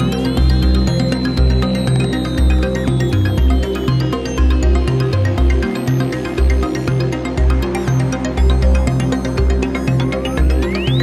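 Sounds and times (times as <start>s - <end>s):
synthesizer arpeggio: 0.0s - 11.0s.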